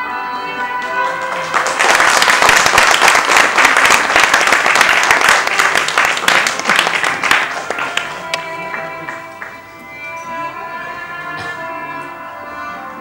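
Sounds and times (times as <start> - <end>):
audience applauding: 0.8 - 9.6.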